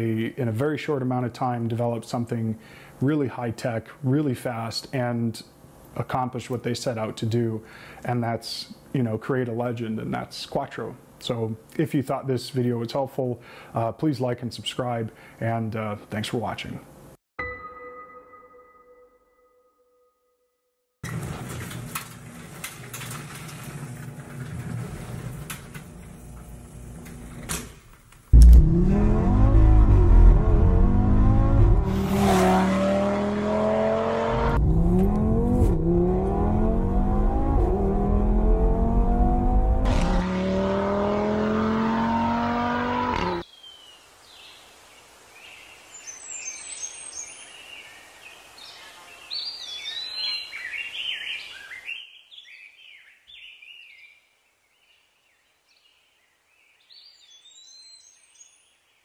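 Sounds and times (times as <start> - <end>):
car engine accelerating hard: 28.3 - 43.4.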